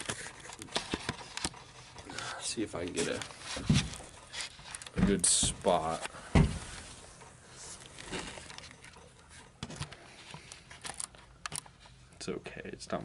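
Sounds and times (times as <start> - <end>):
camera handling knocks and rustles: 2.9 - 6.9, 7.9 - 11.7.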